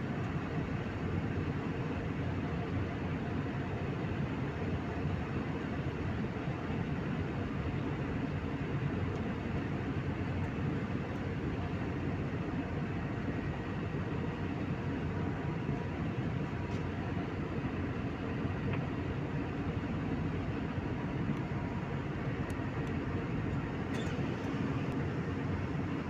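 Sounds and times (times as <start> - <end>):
faint steady engine whine: 0.0 - 26.0
jet airliner cabin rush: 23.8 - 26.0.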